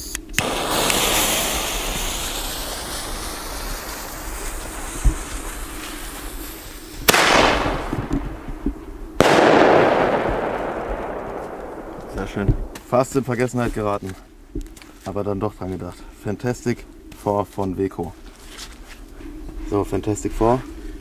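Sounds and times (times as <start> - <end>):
firework fuse hissing: 0.1 - 12.9
firework shell bursting: 0.3 - 12.9
firework launch crack: 0.3 - 13.1.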